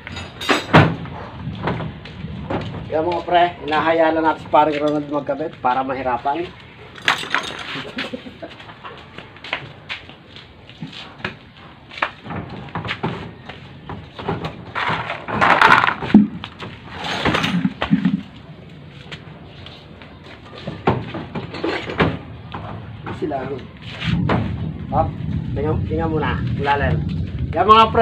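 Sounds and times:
metal knocking and scraping: 0:12.2 - 0:18.4, 0:20.6 - 0:23.3.

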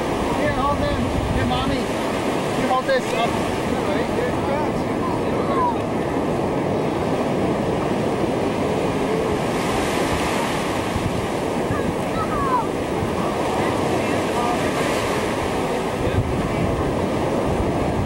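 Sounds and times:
ocean surf washing ashore: 0:00.0 - 0:18.0
wind on microphone: 0:00.0 - 0:18.0.

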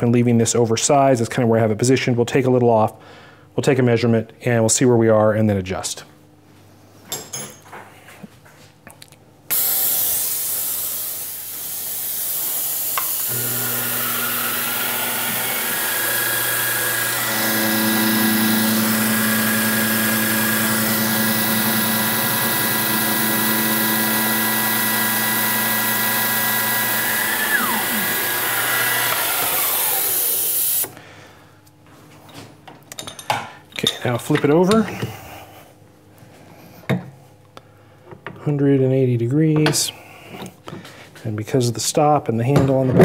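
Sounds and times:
air-mist coolant hissing: 0:09.5 - 0:30.9
milling machine cutting metal: 0:12.0 - 0:30.9.

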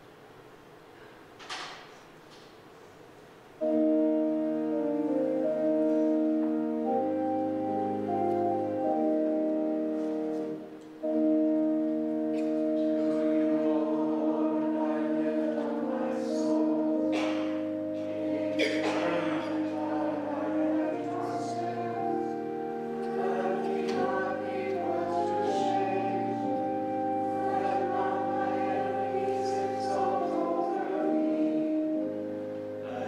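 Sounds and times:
organ playing hymn chords: 0:03.5 - 0:33.0
wavering voices singing: 0:12.2 - 0:33.0.

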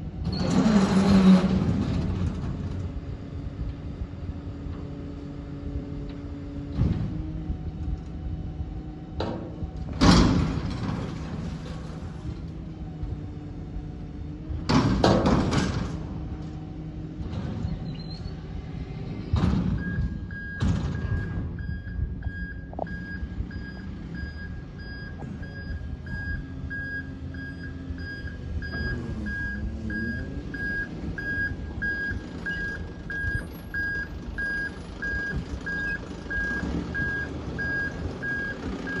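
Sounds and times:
reversing alarm beeping: 0:19.8 - 0:39.0.

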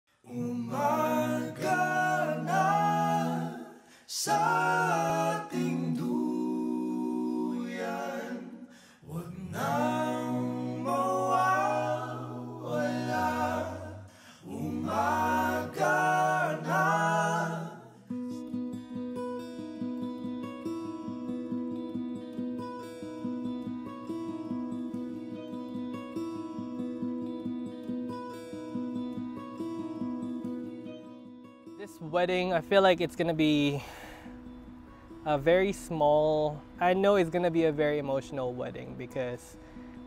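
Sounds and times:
voices singing in harmony: 0:00.2 - 0:18.4.

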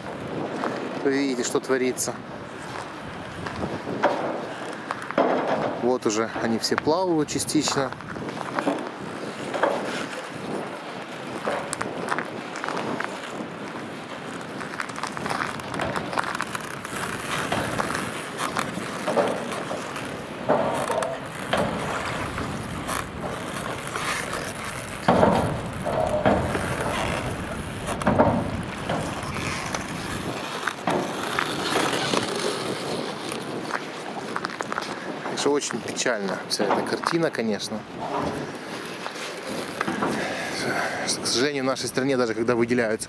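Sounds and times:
wind on microphone: 0:00.0 - 0:01.1, 0:02.1 - 0:36.8, 0:37.8 - 0:41.4
footsteps crunching on shells and sand: 0:07.5 - 0:37.3.

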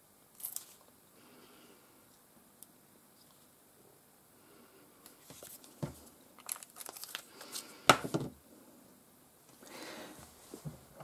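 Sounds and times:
paper crinkling and rustling: 0:05.2 - 0:07.8.

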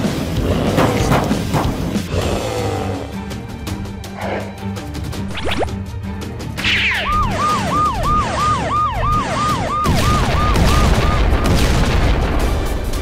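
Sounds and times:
background music: 0:00.0 - 0:13.0
siren wailing: 0:06.6 - 0:11.5.

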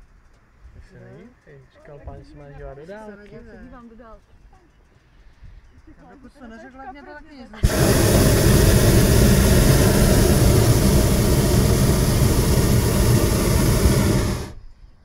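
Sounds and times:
propane burner roaring: 0:07.6 - 0:14.6.

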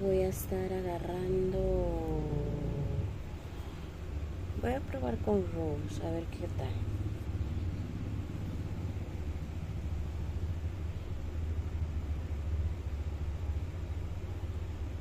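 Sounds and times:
faint hiss: 0:00.0 - 0:15.0
low rumble: 0:00.0 - 0:15.0.

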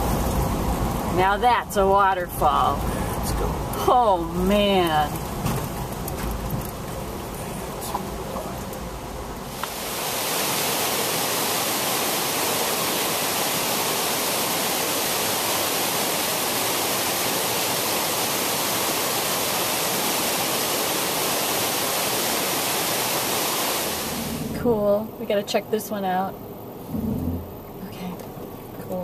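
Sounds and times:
waterfall pouring: 0:09.5 - 0:24.6.

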